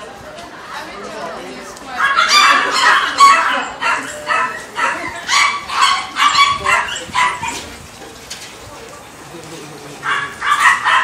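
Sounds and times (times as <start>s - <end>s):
small dog yapping: 2.0s - 7.7s, 10.0s - 11.0s.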